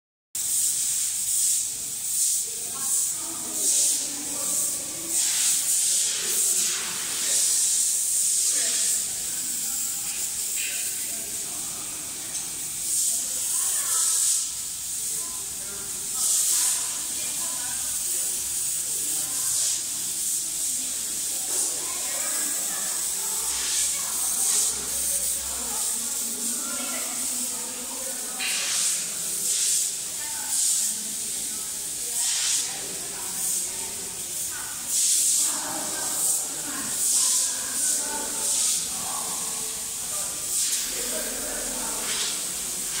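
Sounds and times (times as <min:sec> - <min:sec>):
loud high hiss: 0:00.4 - 0:27.8
faint indistinct voices: 0:00.4 - 0:43.0.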